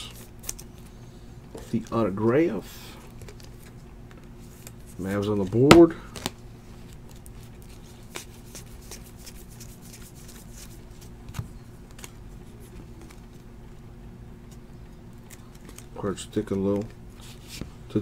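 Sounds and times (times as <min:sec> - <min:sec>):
steady low hum: 0:00.0 - 0:18.0
trading cards rustling: 0:03.0 - 0:13.5, 0:14.5 - 0:18.0.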